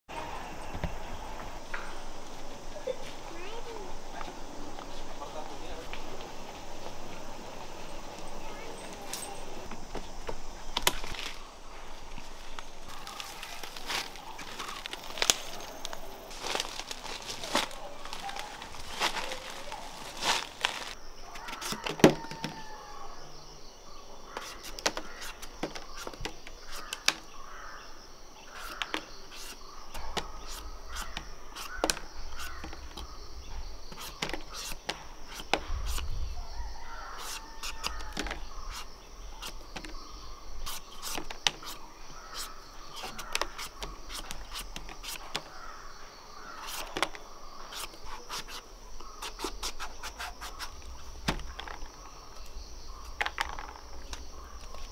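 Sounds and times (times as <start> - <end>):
crows cawing: 12.8 - 23.4, 24.2 - 25.6, 26.6 - 33.4, 36.4 - 40.5, 41.6 - 44.1, 45.2 - 47.7
knife peeling papaya skin: 37.1 - 39.6, 49.2 - 50.8.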